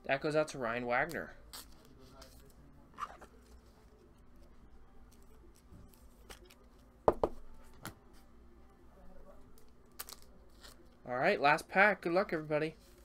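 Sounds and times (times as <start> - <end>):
cards tapping and clicking: 5.9 - 8.0.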